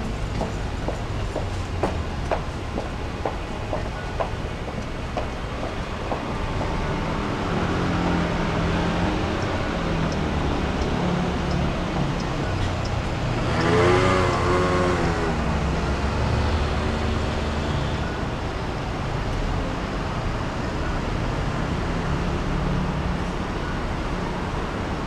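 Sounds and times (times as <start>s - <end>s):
vehicle passing: 0.0s - 17.6s
traffic rumble: 0.0s - 25.0s.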